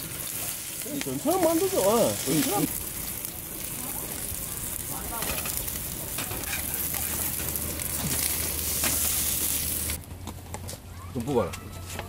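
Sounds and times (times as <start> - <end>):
pancakes sizzling in oil: 0.0 - 10.0
metal spatula scraping a pan: 5.2 - 7.6.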